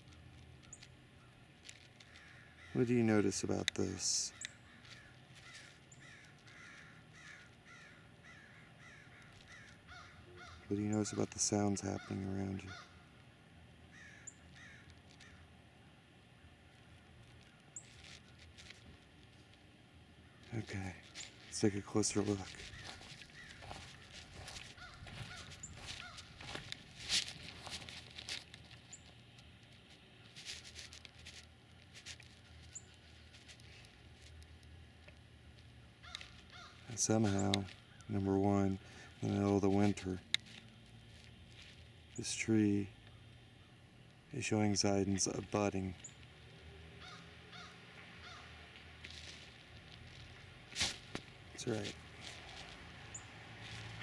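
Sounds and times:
crows cawing faintly: 0:00.6 - 0:29.1, 0:29.8 - 0:44.1, 0:45.2 - 0:54.0
crows cawing: 0:01.9 - 0:03.2, 0:04.2 - 0:13.1, 0:13.9 - 0:15.5, 0:20.2 - 0:26.8, 0:36.0 - 0:37.1, 0:37.7 - 0:38.2, 0:38.8 - 0:39.3, 0:47.0 - 0:48.6.

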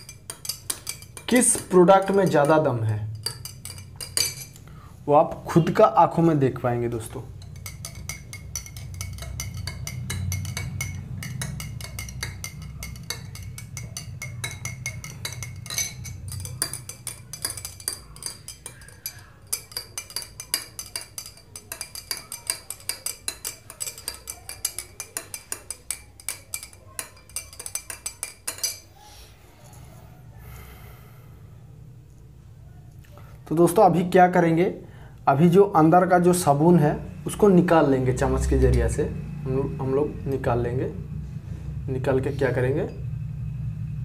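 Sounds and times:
spoon clinking in a glass: 0:00.0 - 0:04.6, 0:07.3 - 0:28.9.

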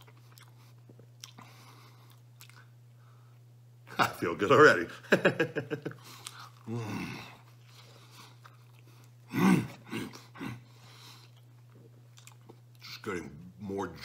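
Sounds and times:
man chewing food: 0:00.0 - 0:03.5, 0:05.8 - 0:13.1
steady low hum: 0:00.0 - 0:14.0.

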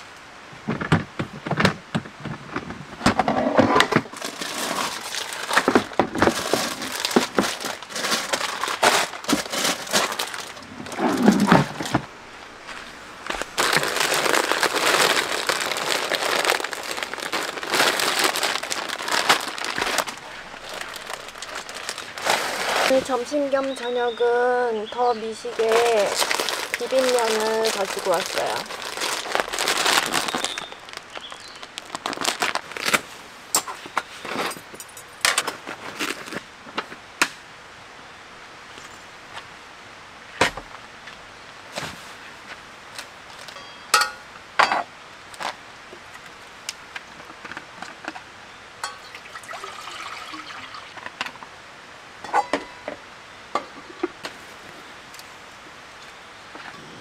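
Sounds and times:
plastic packaging crinkling: 0:04.1 - 0:11.9, 0:13.3 - 0:23.8, 0:25.0 - 0:33.1, 0:42.9 - 0:43.6
metal cookware clinking: 0:43.5 - 0:44.9, 0:48.8 - 0:49.2.

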